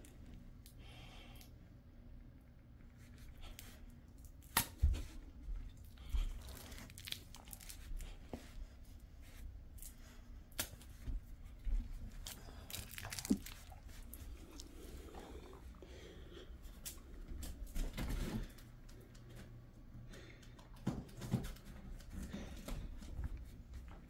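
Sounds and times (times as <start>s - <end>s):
dog gnawing plush toy: 12.1s - 15.6s.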